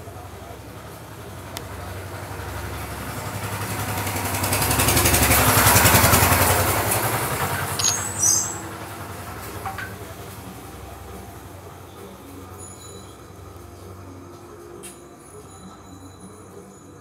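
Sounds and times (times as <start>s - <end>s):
vehicle engine passing by: 0.7s - 12.5s.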